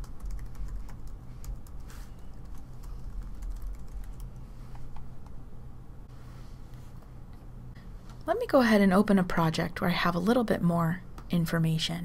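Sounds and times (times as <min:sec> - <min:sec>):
computer keyboard typing: 0:00.0 - 0:04.4
low steady hum: 0:00.0 - 0:12.0.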